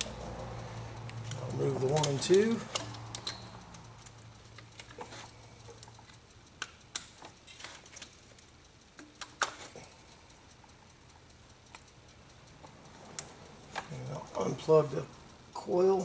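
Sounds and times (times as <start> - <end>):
spark plug boots clicking: 0.0 - 16.0.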